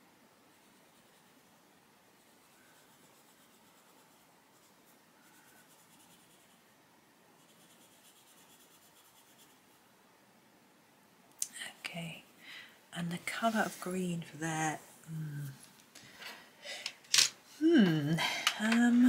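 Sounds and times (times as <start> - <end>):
pencil scratching on paper: 0.5 - 1.4, 2.2 - 6.6, 7.4 - 9.6.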